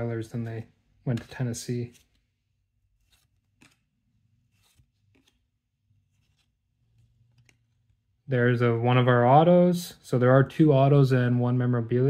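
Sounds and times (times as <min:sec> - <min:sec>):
trading cards being handled: 0:00.3 - 0:08.2.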